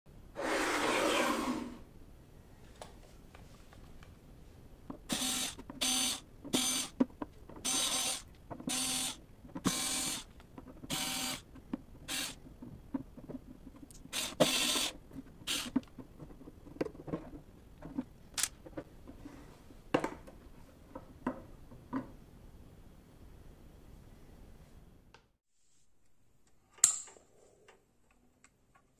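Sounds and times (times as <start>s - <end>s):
electric screwdriver whirring: 5.1s - 6.9s, 7.7s - 10.3s, 10.9s - 11.4s, 12.1s - 12.4s, 14.1s - 15.7s
screws and metal lid clicking: 13.9s - 15.9s.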